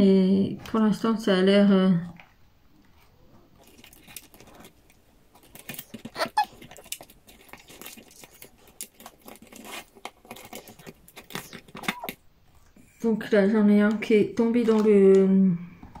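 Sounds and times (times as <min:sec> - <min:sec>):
rustling: 0:02.2 - 0:12.8
plastic clicks: 0:13.8 - 0:16.0.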